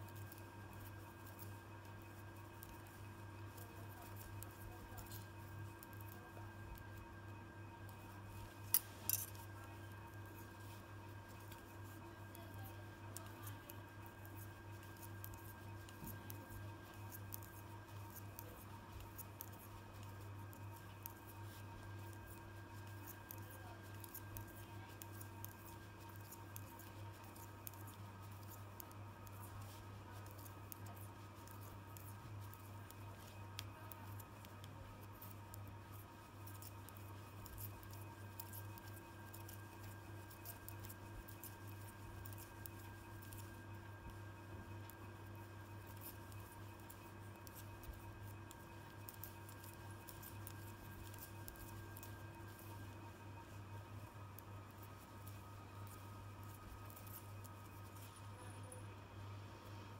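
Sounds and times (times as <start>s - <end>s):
steady electrical hum: 0.0s - 59.9s
metal knitting needles clicking: 8.3s - 9.4s, 14.1s - 35.3s, 45.8s - 52.7s.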